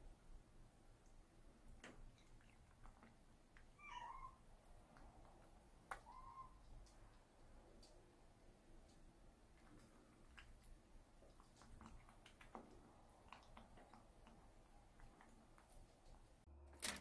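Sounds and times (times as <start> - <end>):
kitten chirp-like call: 3.8 - 4.4, 6.0 - 6.6
kitten meowing: 3.8 - 4.4, 6.0 - 6.6.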